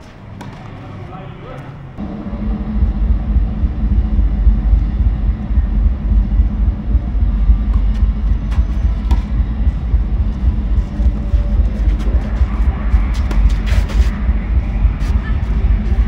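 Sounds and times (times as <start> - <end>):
rackets hitting tennis ball: 0.0 - 1.1, 8.5 - 9.4, 13.1 - 14.2
low steady rumble: 1.9 - 16.0.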